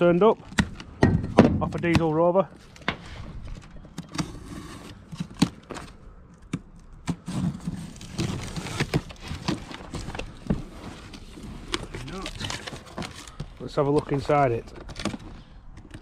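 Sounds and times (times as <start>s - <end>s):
cardboard box being opened: 7.1s - 15.4s
cardboard flaps rustling: 7.1s - 15.4s.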